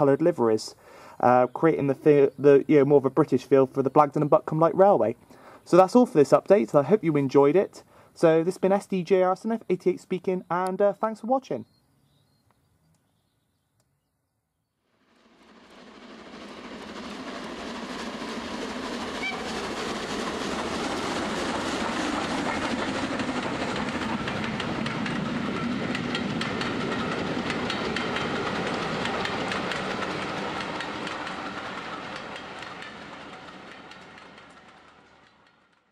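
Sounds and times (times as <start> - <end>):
train wheels clacking on rails: 15.6 - 35.9.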